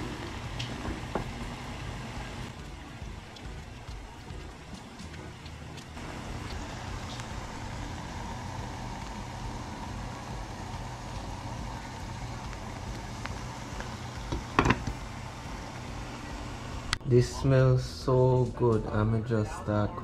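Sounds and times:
gas burner hissing: 0.0 - 19.7
faint hum: 0.0 - 20.0.

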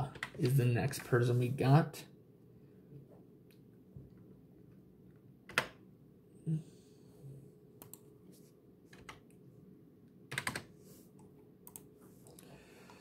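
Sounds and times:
keyboard key presses: 10.3 - 10.7.

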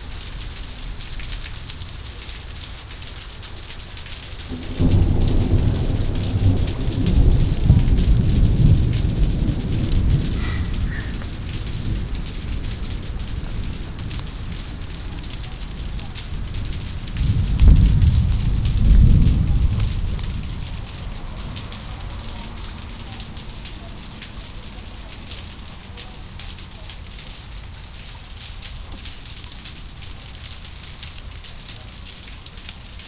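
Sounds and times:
rain falling: 0.0 - 33.0
low rumbling thunder: 4.5 - 24.3.

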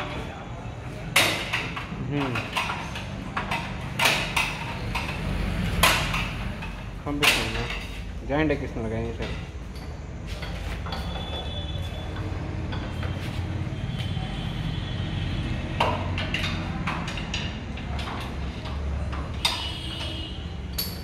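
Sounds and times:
metal tools clinking on engine: 5.8 - 8.0, 9.1 - 13.1, 16.2 - 21.0.

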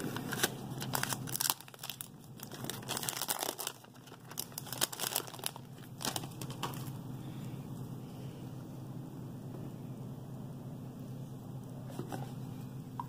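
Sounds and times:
plastic wrap tearing and crinkling: 0.0 - 7.0.

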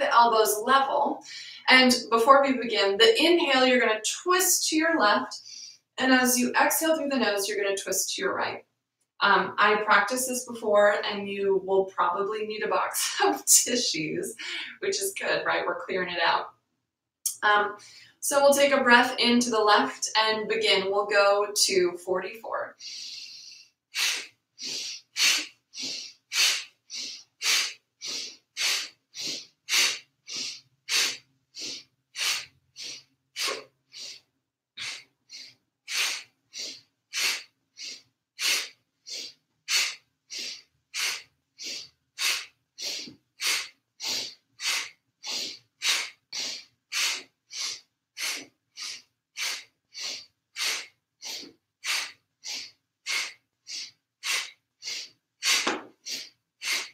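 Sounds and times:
woman breathing sharply through nose: 5.4 - 5.9, 14.4 - 14.8, 22.8 - 56.9.

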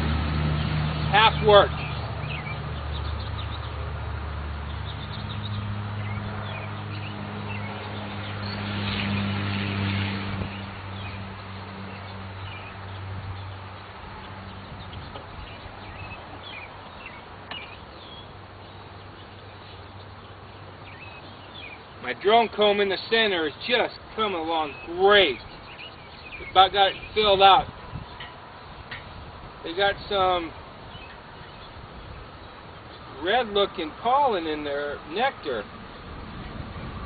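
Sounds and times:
low engine hum: 0.0 - 22.3
bird chirps: 1.2 - 3.8, 4.7 - 9.3, 11.9 - 28.4, 30.2 - 33.1.

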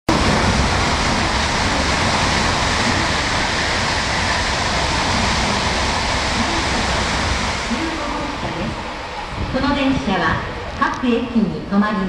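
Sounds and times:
bullet train passing at speed: 0.1 - 12.0.

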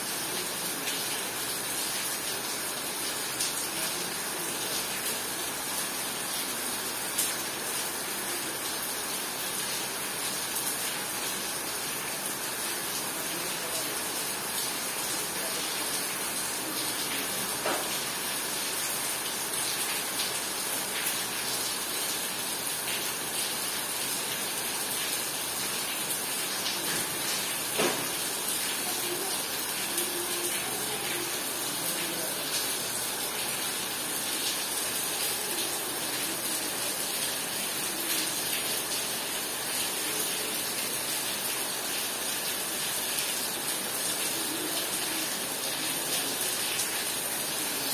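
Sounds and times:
heavy rain pouring: 0.0 - 47.9
sharp tap of raindrop: 27.8 - 28.2.

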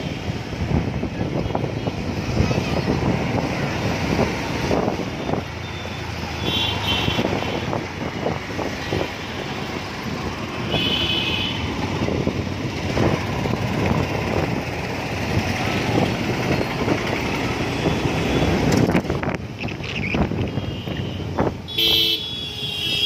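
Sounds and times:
city street traffic: 0.0 - 23.0
vehicle horn beeps: 20.6 - 23.0.

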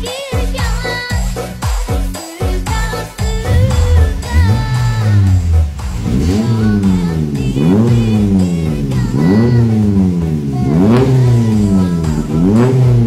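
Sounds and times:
car engine revving: 3.2 - 13.0.

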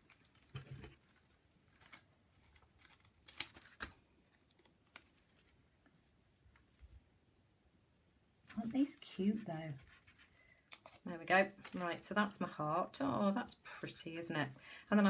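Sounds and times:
paper tape rustling and crackling: 0.0 - 5.6, 8.5 - 12.7.

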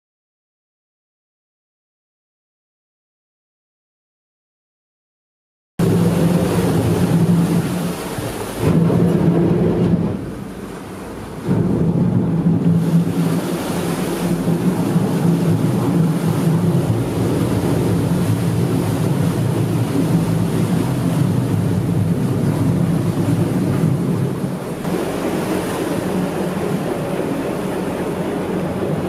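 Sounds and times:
boat engine low rumble: 5.8 - 29.0
water noise: 5.8 - 29.0
wind noise: 5.8 - 29.0.

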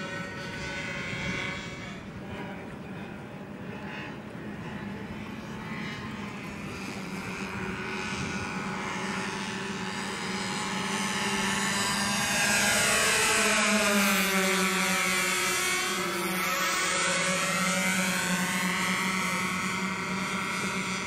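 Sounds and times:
model plane propeller engines humming: 0.0 - 21.0.

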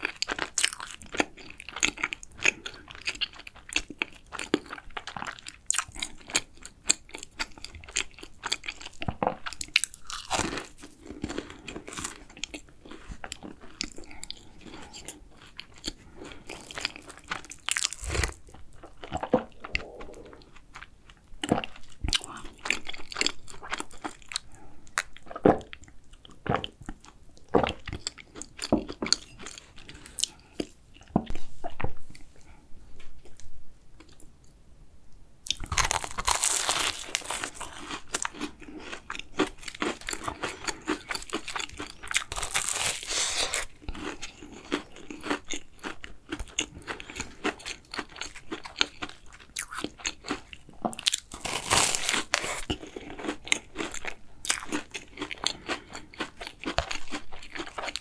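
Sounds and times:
cookie crunching while eating: 0.0 - 24.5, 35.5 - 58.0
soft mouth sounds: 19.2 - 22.6.

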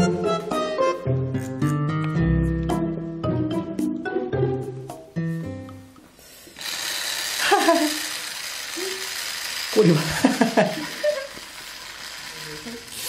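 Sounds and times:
toy motor whirring and rattling: 6.3 - 13.0.

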